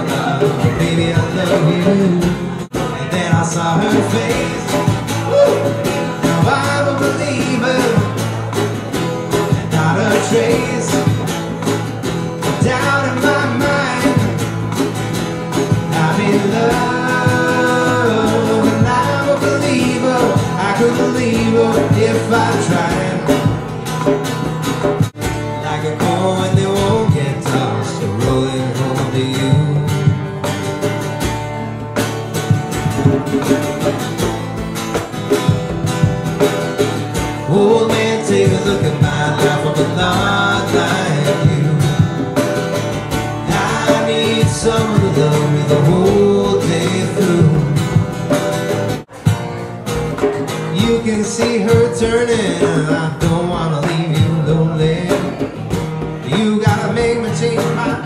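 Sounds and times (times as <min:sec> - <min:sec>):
person singing: 0:00.0 - 0:08.2, 0:37.5 - 0:42.3, 0:43.4 - 0:48.0
hand drum: 0:00.0 - 0:58.0
strummed acoustic guitar: 0:00.0 - 0:58.0.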